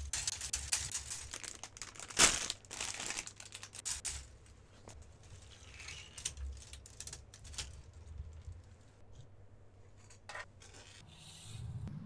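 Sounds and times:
plastic pieces rattling and scraping: 0:00.0 - 0:04.3, 0:05.0 - 0:08.8.

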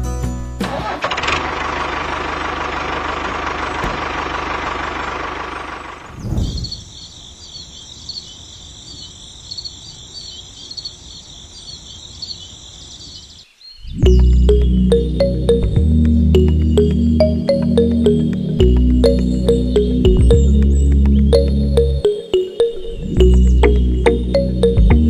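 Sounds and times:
engine running: 0:00.6 - 0:06.2, 0:14.1 - 0:22.4
crickets chirping: 0:04.1 - 0:15.0.

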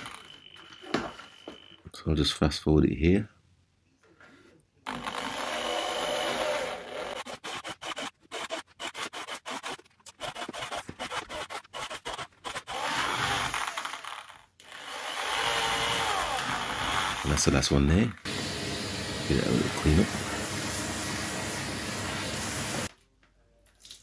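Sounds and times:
electric drill boring wood: 0:00.0 - 0:01.6, 0:04.9 - 0:17.5, 0:18.3 - 0:22.9.

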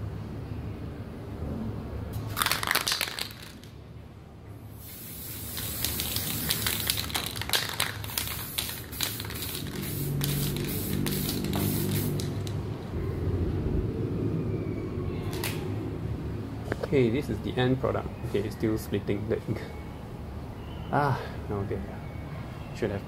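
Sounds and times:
spray can hissing: 0:04.8 - 0:12.6.

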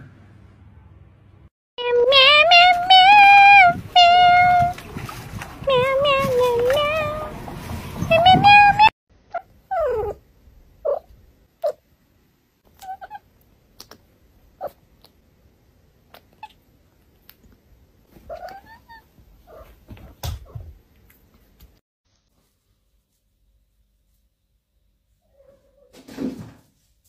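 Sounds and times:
cat chirping: 0:08.0 - 0:10.2, 0:10.8 - 0:11.8, 0:12.7 - 0:14.0, 0:14.6 - 0:15.2, 0:16.1 - 0:16.6, 0:18.2 - 0:19.7
cat mewing: 0:08.0 - 0:10.2, 0:12.7 - 0:13.2, 0:18.3 - 0:19.7.

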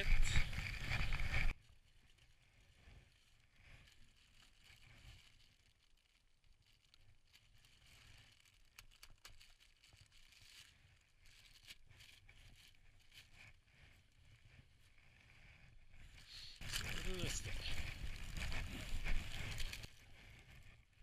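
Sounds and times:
wind noise: 0:00.0 - 0:01.6, 0:13.4 - 0:20.8
plastic bag rustling: 0:00.2 - 0:14.2, 0:16.6 - 0:20.6.

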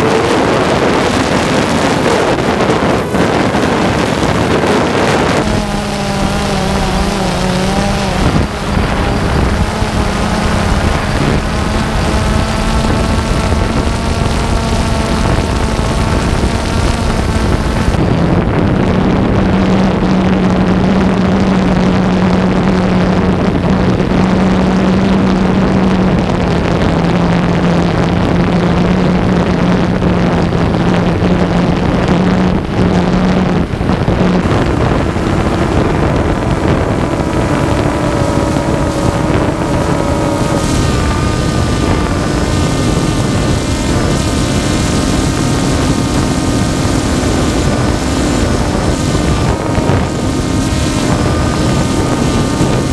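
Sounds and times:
drone propellers whirring: 0:00.0 - 0:52.9.

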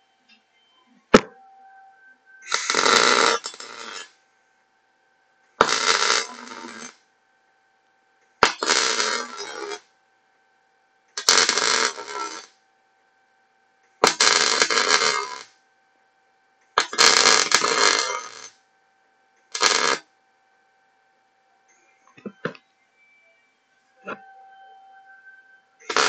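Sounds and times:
welder arc crackling: 0:02.4 - 0:04.1, 0:05.6 - 0:07.0, 0:08.4 - 0:09.8, 0:11.2 - 0:12.5, 0:14.0 - 0:15.5, 0:16.8 - 0:18.5, 0:19.4 - 0:20.0, 0:25.8 - 0:26.0.

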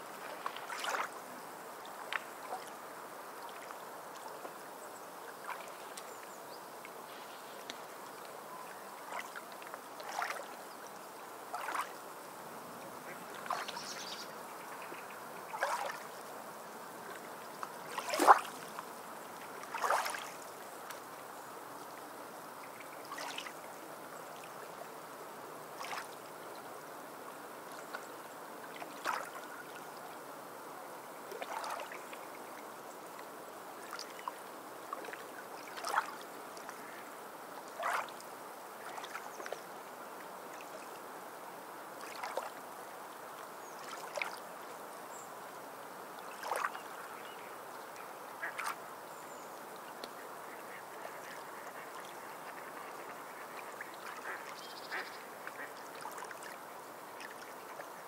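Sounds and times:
small waves lapping on pebbles: 0:00.0 - 0:04.6, 0:08.9 - 0:12.3, 0:13.1 - 0:14.2, 0:15.5 - 0:16.2, 0:17.0 - 0:21.1, 0:22.6 - 0:23.7, 0:25.8 - 0:26.8, 0:27.6 - 0:29.9, 0:31.2 - 0:32.7, 0:33.7 - 0:39.6, 0:41.9 - 0:44.6, 0:46.1 - 0:47.3
water splashes: 0:00.0 - 0:04.7, 0:05.3 - 0:16.2, 0:16.8 - 0:25.0, 0:25.6 - 0:26.8, 0:27.6 - 0:30.2, 0:31.2 - 0:39.7, 0:41.9 - 0:45.2, 0:46.0 - 0:58.0.

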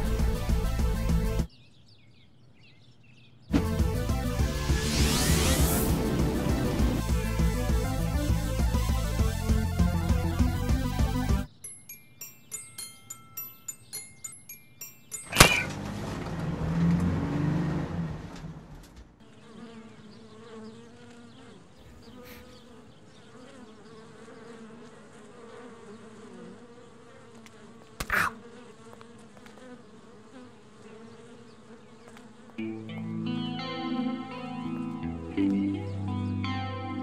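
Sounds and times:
loud crash: 0:03.5 - 0:07.4
sharp hit: 0:03.5 - 0:07.6
mallet percussion notes: 0:11.5 - 0:15.7.

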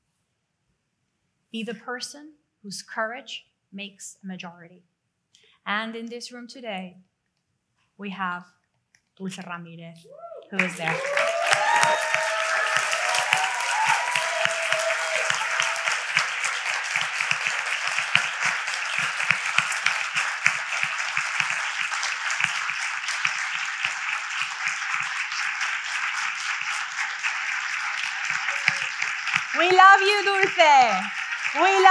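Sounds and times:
audience applauding: 0:10.6 - 0:31.9
voices calling out: 0:28.3 - 0:31.9.

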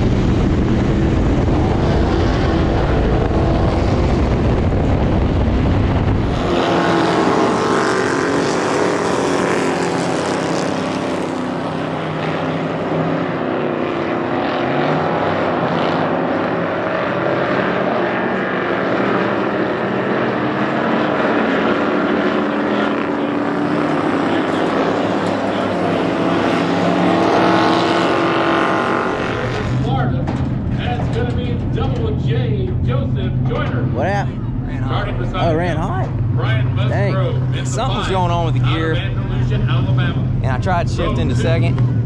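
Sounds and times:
race cars on dirt track: 0:00.0 - 0:42.0
car engine heard from inside cabin: 0:32.9 - 0:42.0.

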